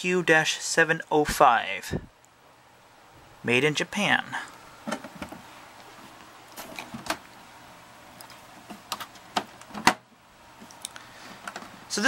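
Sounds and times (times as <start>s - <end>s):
tape recorder case clicks and knocks: 4.8s - 5.4s, 8.7s - 10.0s.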